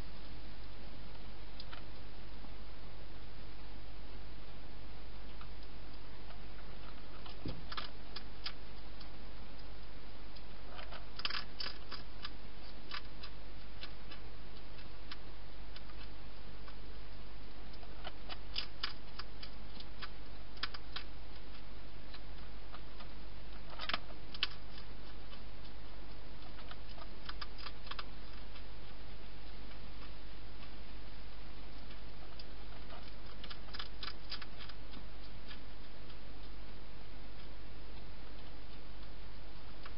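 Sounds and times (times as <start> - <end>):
steady low hum: 0.0 - 39.9
hedgehog chewing crisp crunches: 5.3 - 39.9.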